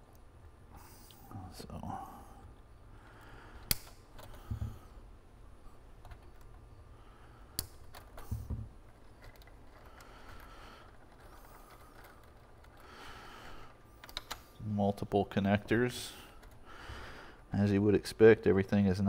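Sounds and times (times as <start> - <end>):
sharp clicks: 3.6 - 4.5, 7.5 - 8.3, 14.0 - 14.5
wire handling rustle: 7.5 - 16.7.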